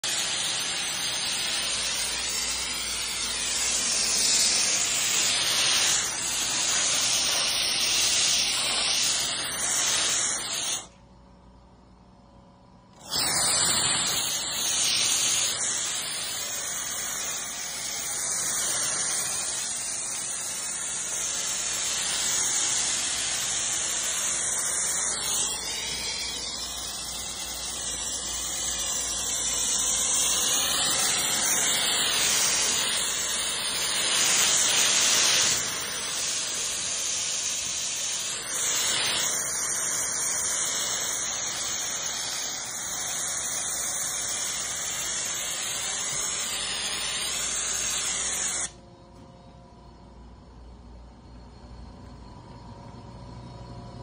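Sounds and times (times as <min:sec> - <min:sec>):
pressure washer spray hissing: 0:00.0 - 0:10.9, 0:13.0 - 0:48.8.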